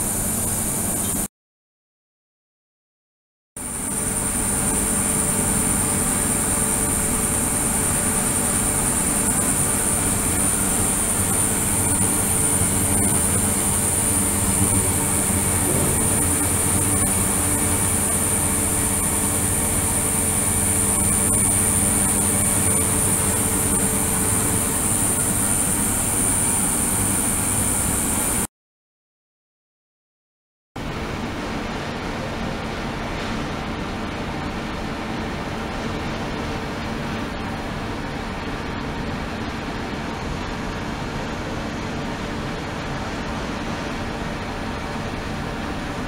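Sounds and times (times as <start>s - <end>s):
high-pitched whine: 0.0s - 1.3s, 3.6s - 28.5s
ultrasonic cleaner hiss and hum: 0.0s - 1.3s, 3.6s - 28.5s.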